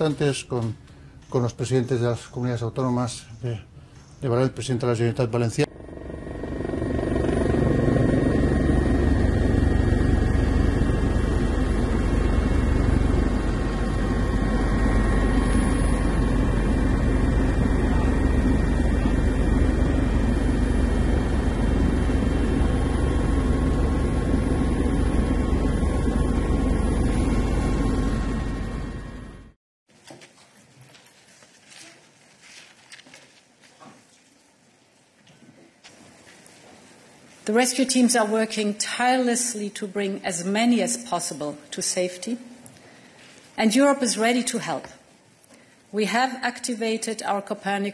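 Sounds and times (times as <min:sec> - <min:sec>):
helicopter engine and rotor: 0:05.6 - 0:29.6.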